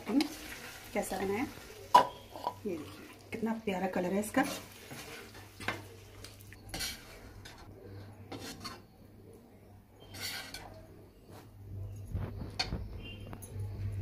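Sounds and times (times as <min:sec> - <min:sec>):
low steady hum: 0:05.3 - 0:14.0
ceramic bowl scraping: 0:06.6 - 0:07.7, 0:08.3 - 0:08.9, 0:10.0 - 0:10.8.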